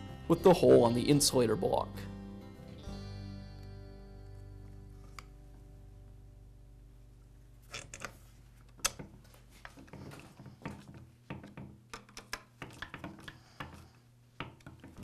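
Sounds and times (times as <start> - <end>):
guitar chord: 0.0 - 6.7
plastic and metal parts clicking: 7.7 - 15.0.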